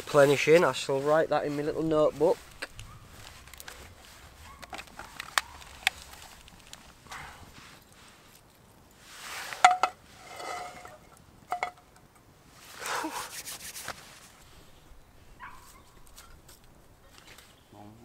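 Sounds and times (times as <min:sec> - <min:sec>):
sticks rustling in fire: 0:00.0 - 0:11.3, 0:15.5 - 0:17.6.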